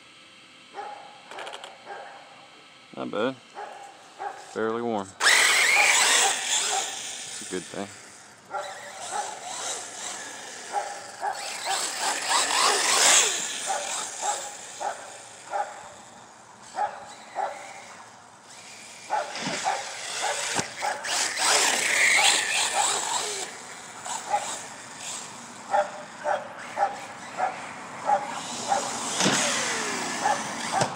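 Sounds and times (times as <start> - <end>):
dog barking: 0.8 - 1.2, 1.8 - 2.3, 3.6 - 4.5, 8.5 - 9.4, 10.7 - 11.5, 13.7 - 15.8, 16.8 - 17.6, 19.1 - 21.0, 25.7 - 28.9, 30.2 - 30.9
electric motor whining: 1.3 - 30.9.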